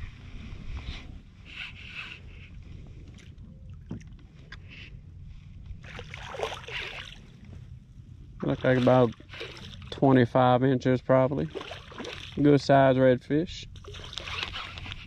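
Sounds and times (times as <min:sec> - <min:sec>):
wind rumble on microphone: 0:00.0 - 0:15.0
fish splashing in water: 0:11.5 - 0:12.4.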